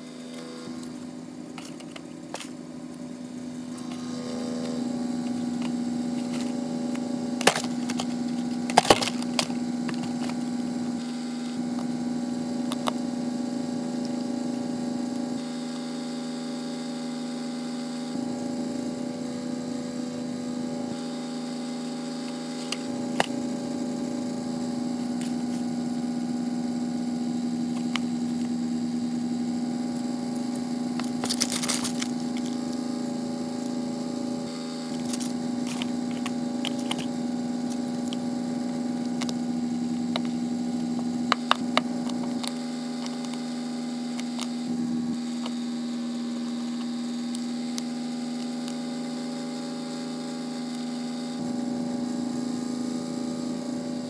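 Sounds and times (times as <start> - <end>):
steady electrical hum: 0.0 - 54.0
scraping and rustling paper: 31.0 - 32.6.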